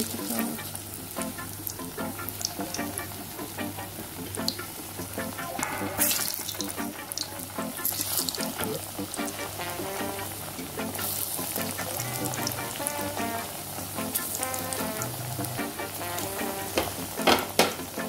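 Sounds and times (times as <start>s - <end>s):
background music: 0.0s - 18.0s
food sizzling in hot oil: 5.6s - 17.9s.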